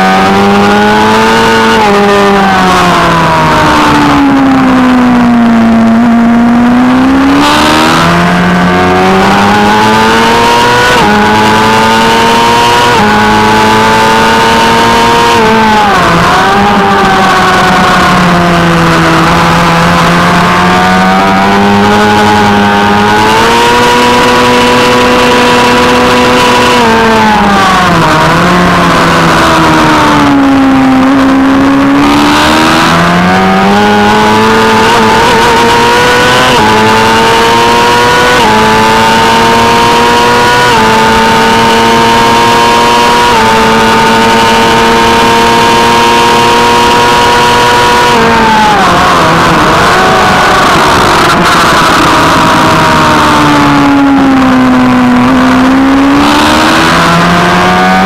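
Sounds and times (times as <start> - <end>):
motorcycle engine revving: 0.0 - 58.0
wind noise on microphone: 48.0 - 54.1.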